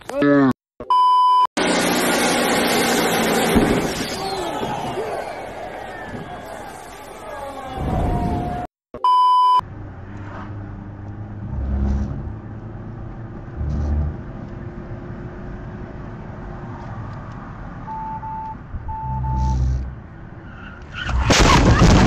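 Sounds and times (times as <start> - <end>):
short beeps: 0.8 - 1.5, 9.0 - 9.6, 17.9 - 19.9
vehicle engine running: 1.6 - 4.0.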